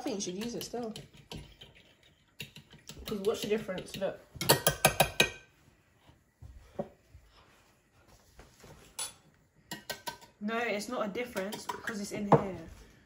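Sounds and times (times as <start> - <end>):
fork beating egg in glass dish: 0.0 - 5.3.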